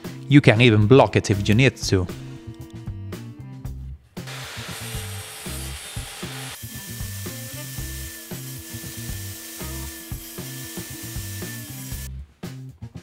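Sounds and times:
background music with bass line: 0.0 - 13.0
circular saw running: 4.3 - 12.1.

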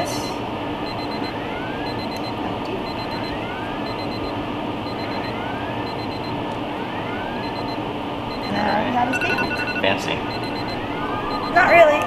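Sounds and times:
alarm beeps and whoop: 4.9 - 6.3, 7.4 - 12.0.

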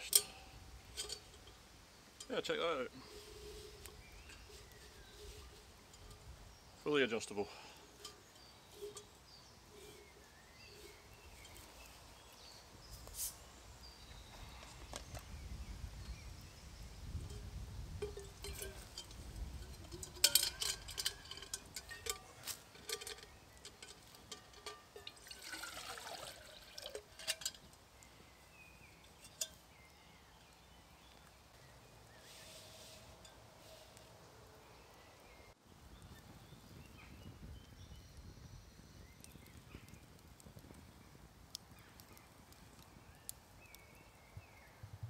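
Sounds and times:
metal pot handle clinks: 0.0 - 1.6, 8.0 - 10.1, 17.2 - 27.7
water pouring into metal pot: 22.9 - 27.7.

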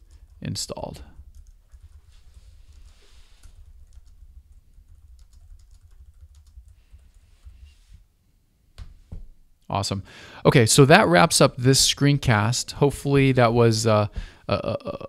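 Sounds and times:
fast keyboard typing: 0.0 - 7.6.

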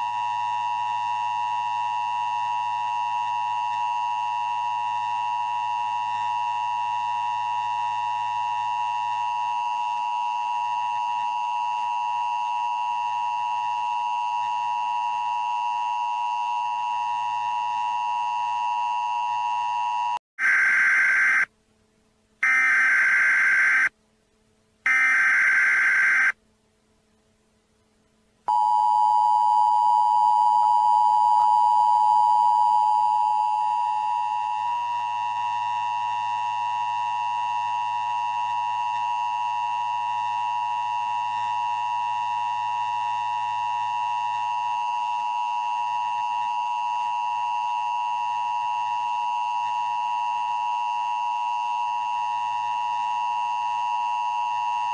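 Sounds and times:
long electronic beeps: 20.4 - 21.5, 22.4 - 23.9, 24.9 - 26.4.

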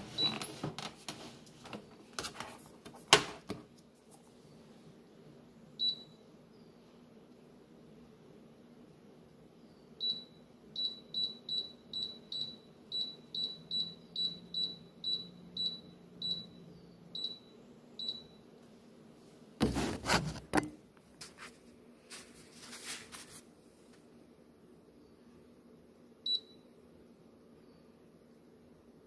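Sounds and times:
rustling and handling noise: 0.0 - 4.6, 19.3 - 24.1.

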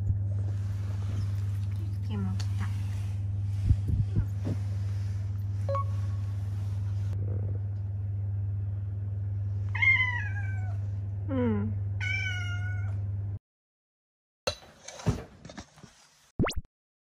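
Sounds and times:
low hum: 0.0 - 12.0
cat meowing: 9.7 - 10.8, 12.0 - 13.0.

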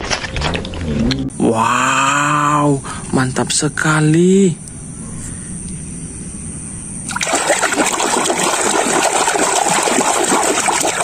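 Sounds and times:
hand splashing water in tub: 7.1 - 11.0.

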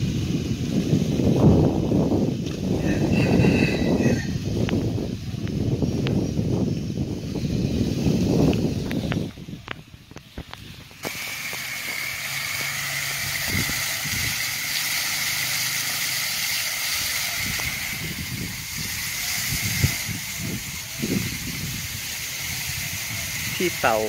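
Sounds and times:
fountain splashing into pond: 8.5 - 24.0.

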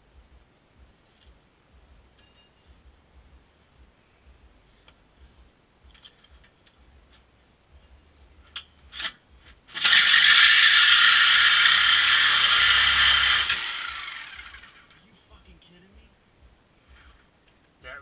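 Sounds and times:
reciprocating saw cutting metal pipe: 9.0 - 14.7.

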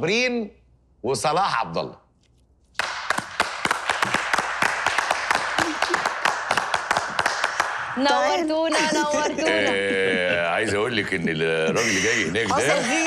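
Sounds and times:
audience applauding: 2.8 - 8.0.

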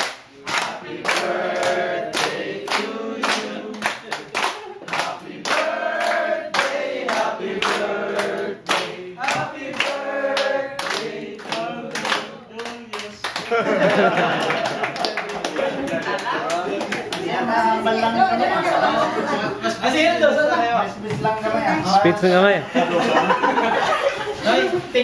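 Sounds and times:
group of people singing: 0.4 - 14.4.

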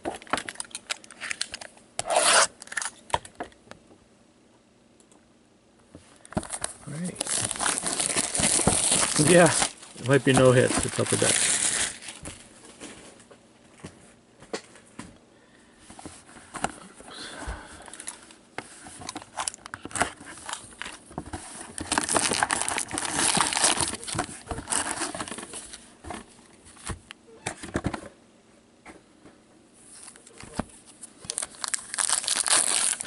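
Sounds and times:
plastic wrap crinkling: 0.1 - 2.9, 6.4 - 12.9, 21.6 - 25.8, 30.0 - 33.0
foil packs rustling: 6.4 - 13.1, 19.0 - 25.8, 31.2 - 33.0
cardboard box being opened: 21.7 - 25.5.

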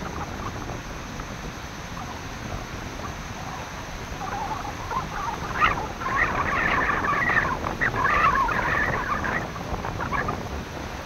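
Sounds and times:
surf on stormy sea: 0.0 - 11.0
wind: 0.0 - 11.0
chattering squawking animal calls: 3.4 - 10.3.

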